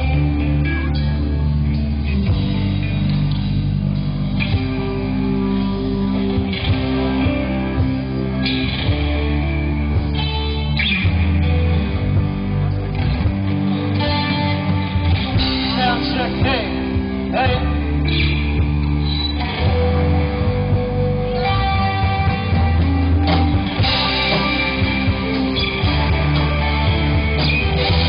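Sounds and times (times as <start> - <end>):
bass guitar: 0.0 - 28.0
drums: 0.0 - 28.0
electric guitars: 0.0 - 28.0.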